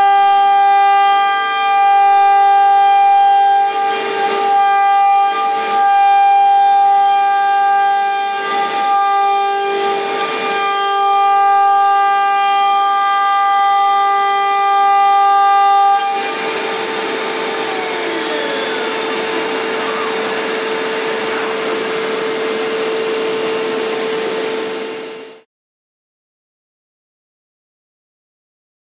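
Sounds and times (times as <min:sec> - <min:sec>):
router spindle whine: 0:00.0 - 0:25.4
falling tones: 0:15.4 - 0:25.2
plastic cutting noise: 0:16.0 - 0:23.0.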